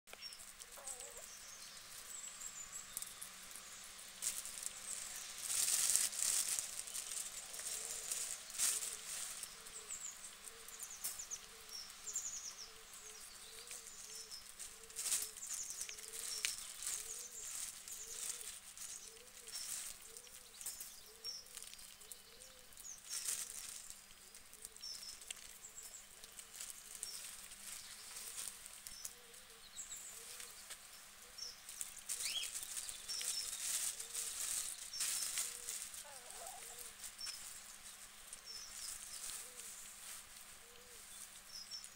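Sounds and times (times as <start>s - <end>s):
soft low animal call: 0.6s - 1.3s, 35.4s - 37.0s.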